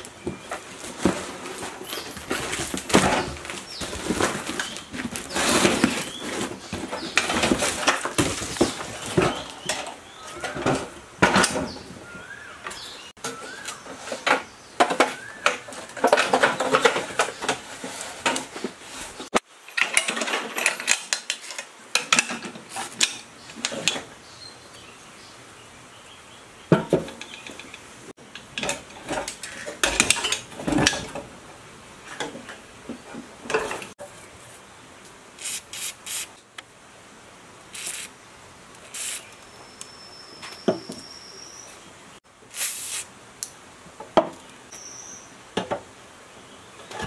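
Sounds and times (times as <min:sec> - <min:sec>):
sheet metal parts clanking: 0:26.8 - 0:31.3.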